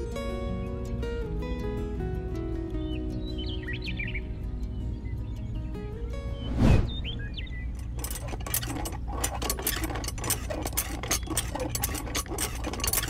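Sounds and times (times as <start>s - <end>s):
small hand pump clicks and rattles: 7.7s - 13.0s.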